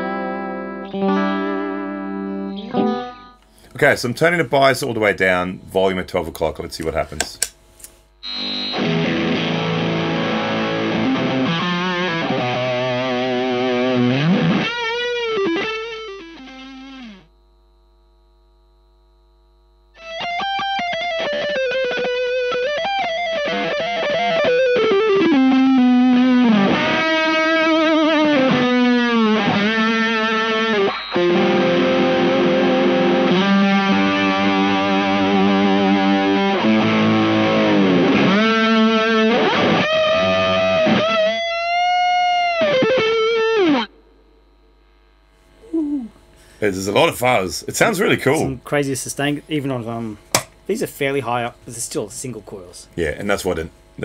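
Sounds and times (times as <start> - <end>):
fuzz electric guitar: 0.0 - 3.6, 8.2 - 17.4, 20.0 - 47.1
faint guitar pickup hum: 0.0 - 54.0.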